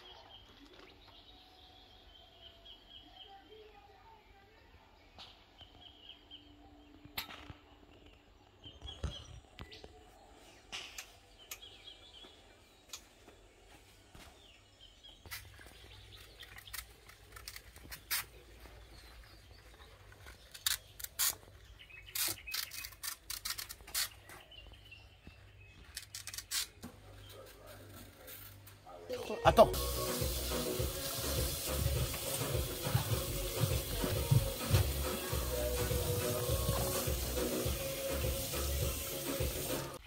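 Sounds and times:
faint birds chirping: 0.0 - 40.0
leaves crinkling and kitchen clicks: 15.3 - 24.6, 25.8 - 28.8.

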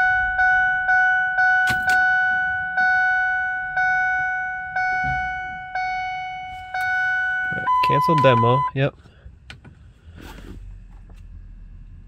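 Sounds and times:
dashboard warning chime: 0.0 - 8.8.

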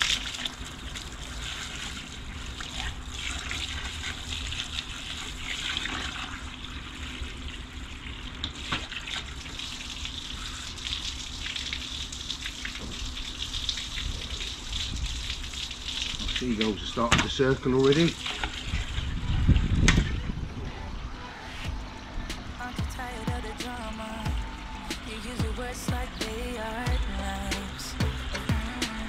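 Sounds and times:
hose water splashing into bucket: 0.0 - 20.2.

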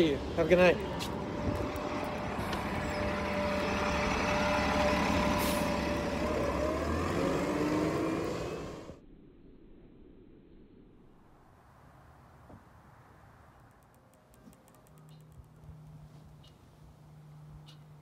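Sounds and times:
bus engine running: 0.0 - 9.0.

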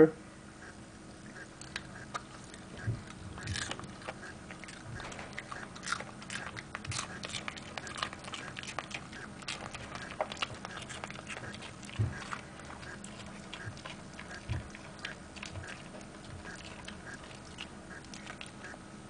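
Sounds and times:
soft low thumps: 0.6 - 5.7, 11.8 - 13.0, 13.6 - 17.3
dog chewing and crunching: 0.9 - 18.8.

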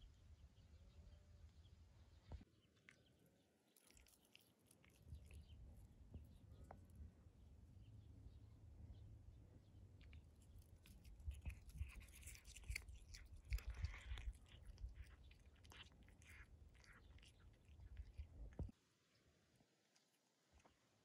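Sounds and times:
cat chewing grass: 2.8 - 7.4, 9.8 - 20.8.

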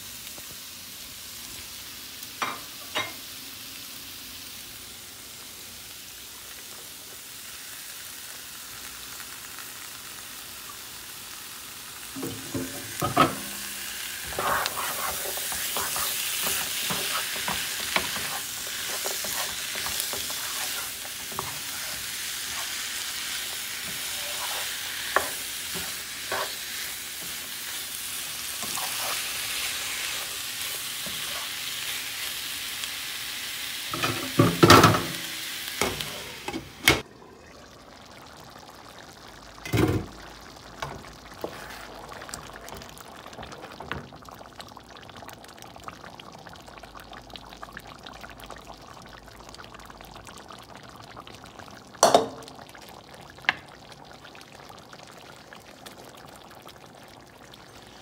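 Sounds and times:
food sizzling in a frying pan: 0.0 - 58.0
wooden spoon scraping a pan: 14.2 - 22.9, 23.5 - 27.5, 28.5 - 31.6, 41.4 - 42.0.

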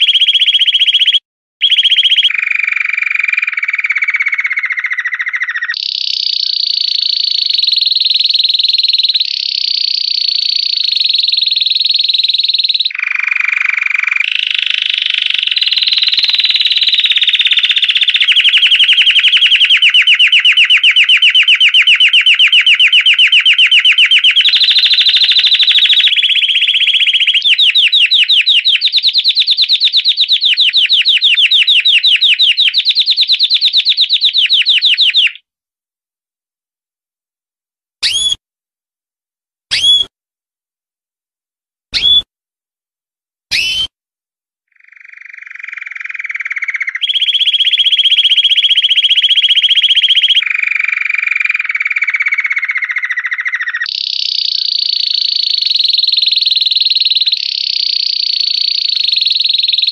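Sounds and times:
canary singing trills: 0.0 - 35.4, 38.0 - 38.4, 39.7 - 40.1, 42.0 - 42.2, 43.5 - 43.9, 44.7 - 59.9.

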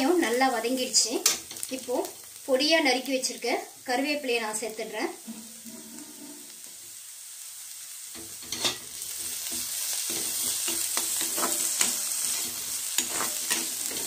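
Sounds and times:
onions sizzling in hot oil: 0.0 - 14.0
spatula scraping a pan: 5.3 - 6.8, 8.2 - 14.0.

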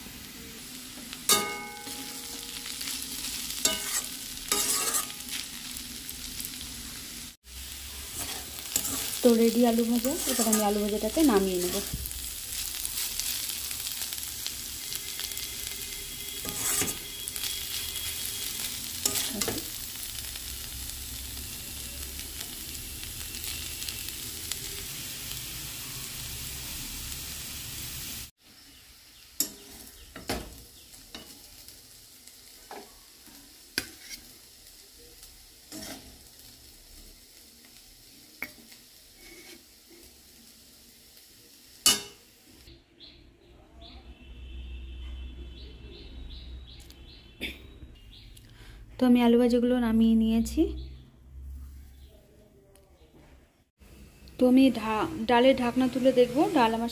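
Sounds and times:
potato sizzling in hot oil: 0.0 - 42.7, 53.9 - 56.9
metal spatula scraping: 1.3 - 5.6, 8.0 - 12.0, 15.0 - 19.8, 32.7 - 34.4, 35.7 - 36.3, 39.0 - 40.2.

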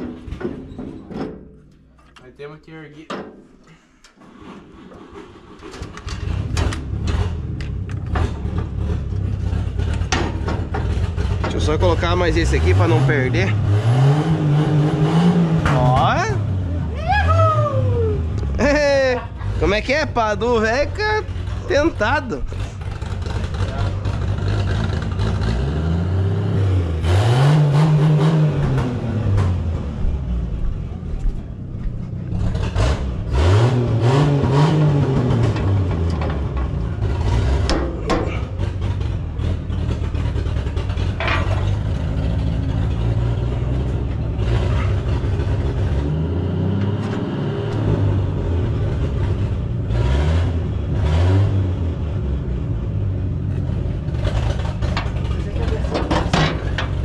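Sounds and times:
tractor diesel engine revving: 5.6 - 17.0, 18.2 - 57.0
metallic clanks: 34.9 - 45.1, 54.2 - 57.0.

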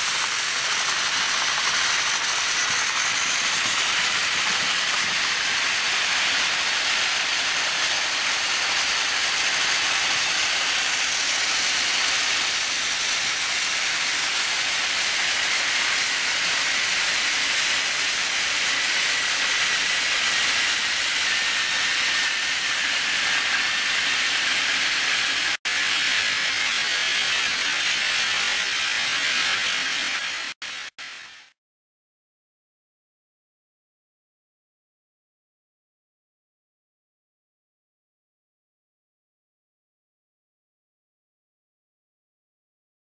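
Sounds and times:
toy train motors whirring: 0.0 - 31.6.

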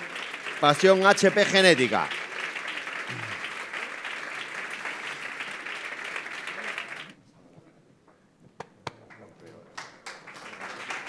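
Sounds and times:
audience applauding: 0.0 - 7.2, 9.0 - 11.0.

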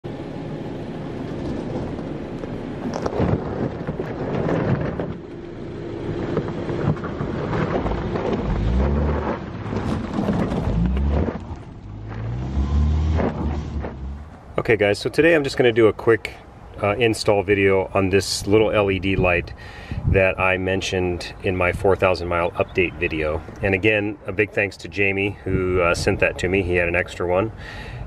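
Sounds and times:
car engine revving: 0.7 - 14.5
tyres crunching over gravel: 6.2 - 14.4.

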